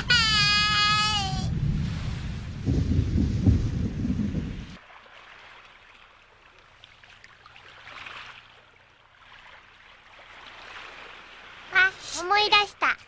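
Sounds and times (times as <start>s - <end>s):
waves rushing: 0.0s - 5.9s, 9.2s - 13.0s
water trickling and lapping: 1.4s - 13.0s.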